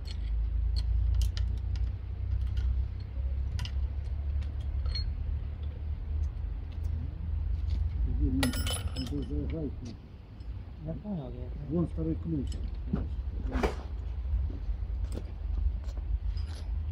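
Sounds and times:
metallic clicks of rescue gear: 0.0s - 7.0s
steady low rumble: 0.0s - 16.9s.

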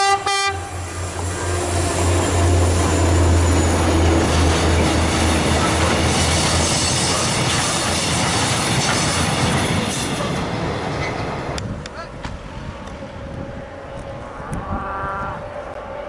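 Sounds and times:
diesel locomotive drone: 0.0s - 16.0s
steel wheels rolling on rails: 0.8s - 11.6s.

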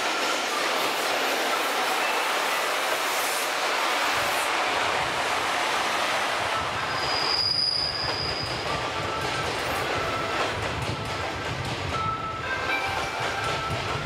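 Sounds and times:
electric locomotive passing: 0.0s - 14.0s
train wheels rumbling on rail: 0.0s - 14.0s
high wheel squeal: 6.7s - 8.8s.

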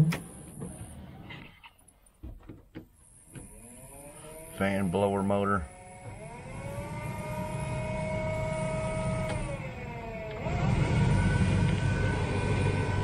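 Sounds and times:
heater fan motor whining: 3.0s - 13.0s.

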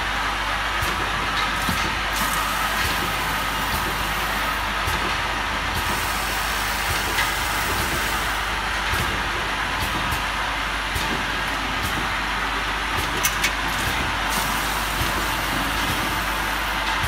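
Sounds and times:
conveyor machinery humming: 0.0s - 17.0s.

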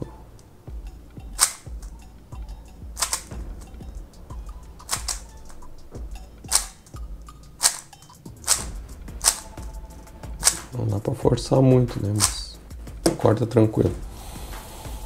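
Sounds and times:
plastic cube clacking: 1.4s - 1.7s, 3.0s - 3.4s, 4.8s - 5.6s, 6.5s - 7.0s, 7.6s - 9.6s.

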